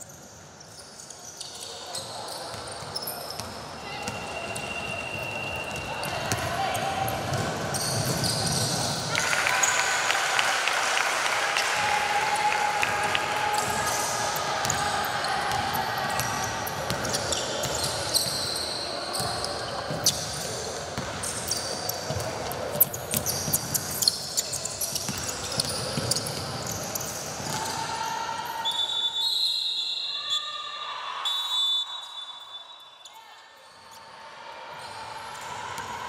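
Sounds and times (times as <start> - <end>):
sneakers squeaking: 0.0 - 9.8, 13.6 - 29.0.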